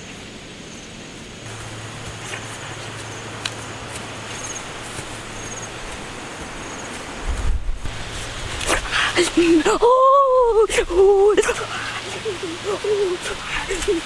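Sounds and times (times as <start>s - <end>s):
steady hiss: 0.0s - 14.0s
low hum: 1.4s - 13.6s
vegetation snapping and rustling: 1.5s - 6.1s, 7.8s - 9.0s.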